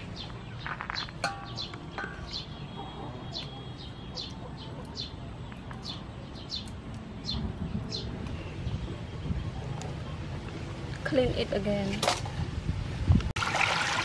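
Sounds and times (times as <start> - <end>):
bird chirping: 0.0 - 10.3.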